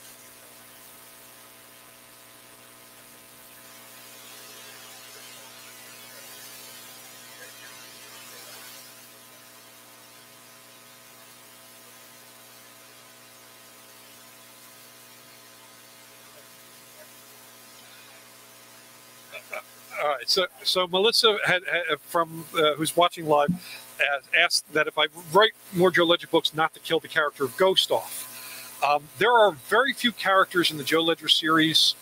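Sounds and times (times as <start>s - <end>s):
electrical mains hum: 0.0s - 32.0s
faint hiss: 16.3s - 32.0s.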